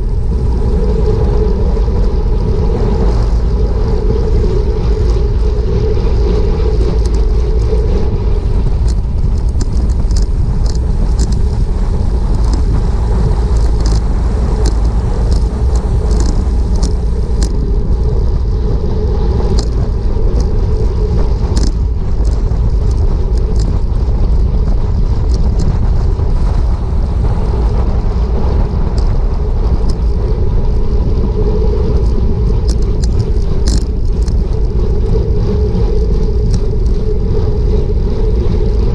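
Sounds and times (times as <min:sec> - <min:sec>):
heavy wind noise: 0:00.0 - 0:38.9
road rumble: 0:00.0 - 0:38.9
sharp ticks: 0:08.7 - 0:17.7, 0:19.5 - 0:20.6, 0:21.4 - 0:23.8, 0:32.0 - 0:34.5.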